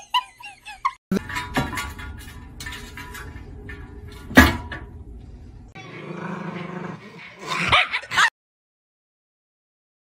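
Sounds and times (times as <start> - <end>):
dog barking and growling: 5.8 - 8.3.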